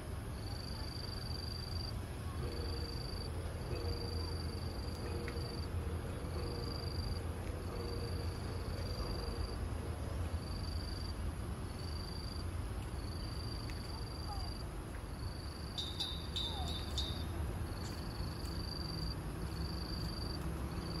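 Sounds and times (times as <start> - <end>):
insect chirping: 0.4 - 9.7, 10.4 - 21.0
sharp high calls: 15.8 - 17.4.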